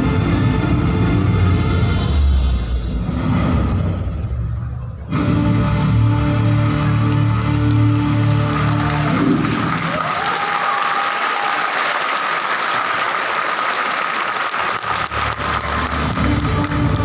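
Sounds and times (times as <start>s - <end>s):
dance music: 0.0s - 10.0s, 14.9s - 17.0s
audience applauding: 6.6s - 17.0s.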